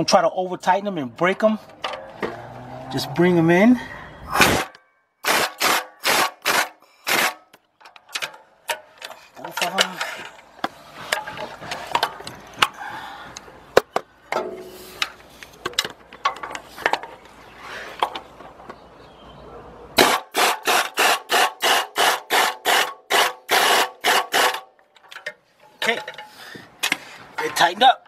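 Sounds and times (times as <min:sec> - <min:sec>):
tool clicks and scraping: 0:04.3 - 0:18.5, 0:20.0 - 0:27.7
hand ratchet strokes: 0:20.0 - 0:24.7.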